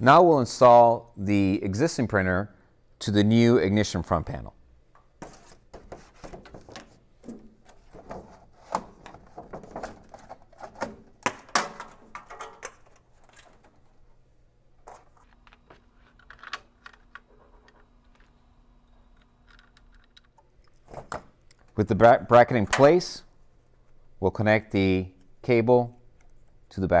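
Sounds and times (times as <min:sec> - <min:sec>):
hard parts clicking and knocking: 0:15.4 - 0:21.8.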